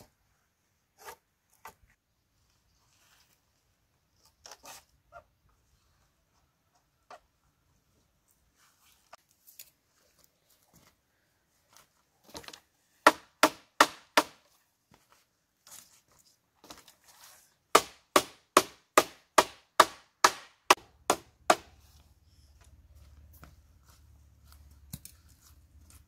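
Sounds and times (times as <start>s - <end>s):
hand tool striking bamboo: 13.0s - 14.4s, 17.7s - 21.8s.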